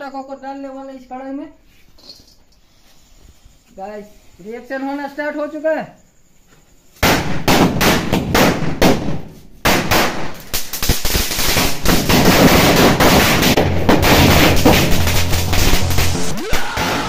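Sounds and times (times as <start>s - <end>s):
firecrackers banging in a wok: 7.0s - 17.0s.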